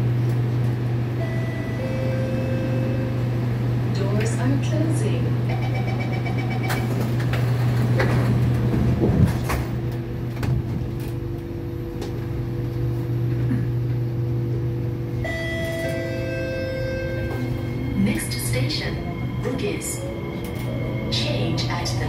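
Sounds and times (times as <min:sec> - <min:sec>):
train doors sliding shut: 0:06.6 - 0:11.2, 0:15.2 - 0:17.7.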